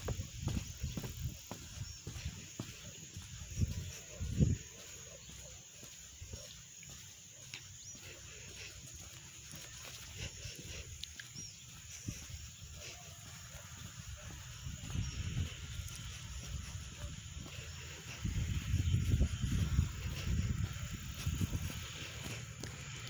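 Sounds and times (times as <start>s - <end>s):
wind rumble on microphone: 0.0s - 2.4s, 3.2s - 4.8s, 14.1s - 23.0s.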